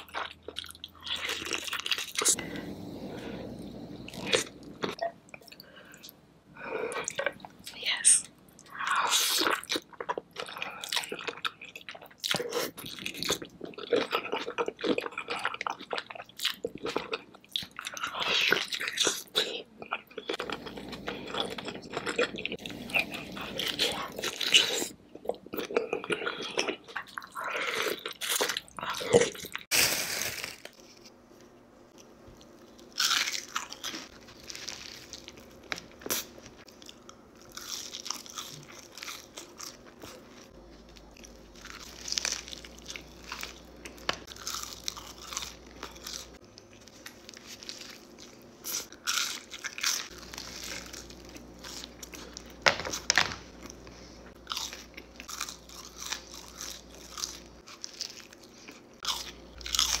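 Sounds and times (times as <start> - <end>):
crunching bites of food: 32.8 - 60.0.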